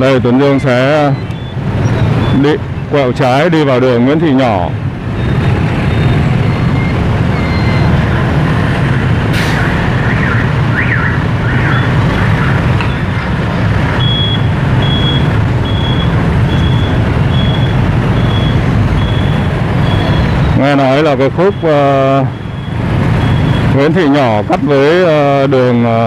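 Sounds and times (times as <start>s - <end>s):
road traffic rumble: 0.0s - 26.0s
high electronic beeps: 0.2s - 2.6s, 5.1s - 8.1s, 13.9s - 24.4s.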